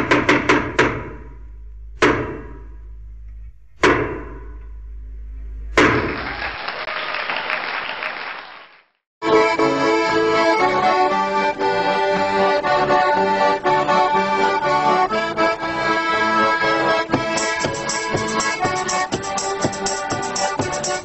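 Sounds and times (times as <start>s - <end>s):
accordion music: 9.2s - 21.0s.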